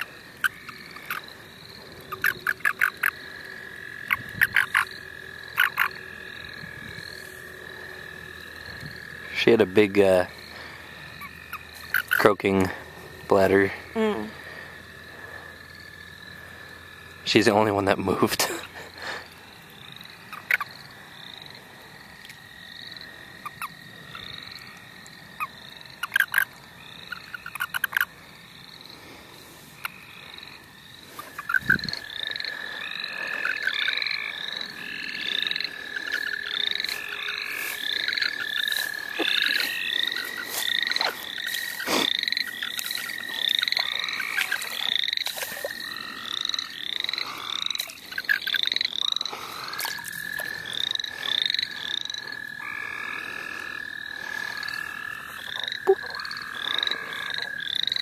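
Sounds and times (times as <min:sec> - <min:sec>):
frogs calling: 0:00.0 - 0:58.0
high-pitched toad trill: 0:02.0 - 0:10.3, 0:11.1 - 0:14.5, 0:25.4 - 0:28.1, 0:31.2 - 0:58.0.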